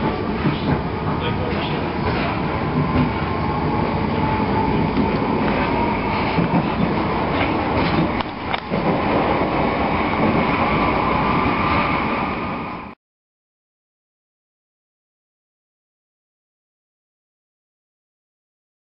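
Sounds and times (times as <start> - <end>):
wheels rumbling on track: 0.0 - 12.1.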